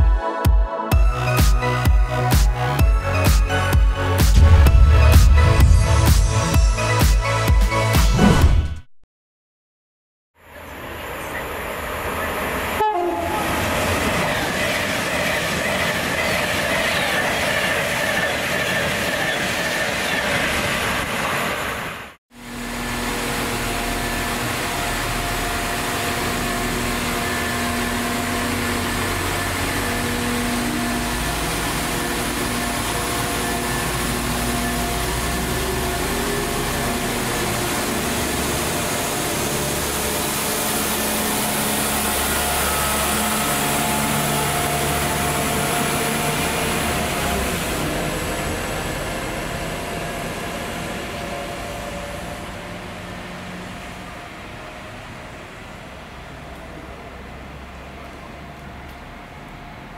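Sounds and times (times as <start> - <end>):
diesel train engines droning: 10.4 - 59.9.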